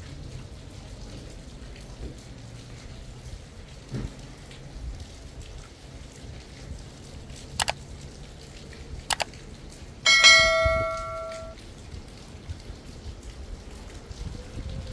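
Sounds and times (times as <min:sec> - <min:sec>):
bright bell ding: 0:10.1 - 0:11.6.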